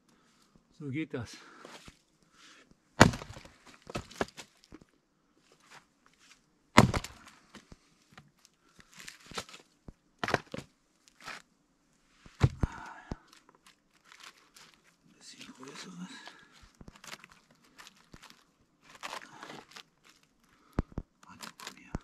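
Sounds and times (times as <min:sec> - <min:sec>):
axe chopping firewood logs: 0:03.0 - 0:04.5, 0:06.8 - 0:07.3, 0:10.2 - 0:11.4, 0:12.4 - 0:13.2
split wood pieces falling: 0:03.0 - 0:04.9, 0:06.8 - 0:07.7, 0:08.9 - 0:11.4, 0:12.4 - 0:14.8, 0:16.6 - 0:22.0.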